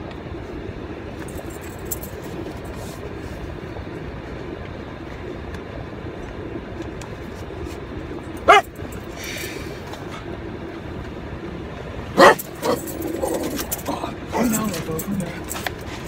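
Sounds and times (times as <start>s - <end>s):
car interior hum: 0.0s - 16.0s
small dog barking: 8.4s - 8.8s, 12.2s - 13.5s.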